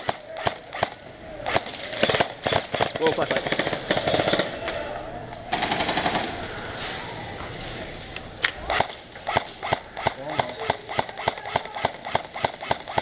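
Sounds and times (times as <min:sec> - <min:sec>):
airsoft guns firing: 0:00.0 - 0:04.8, 0:05.5 - 0:06.4, 0:08.7 - 0:13.0.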